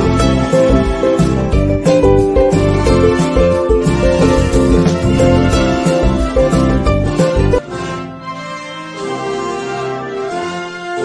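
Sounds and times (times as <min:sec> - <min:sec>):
steady music beat: 0:00.0 - 0:07.6.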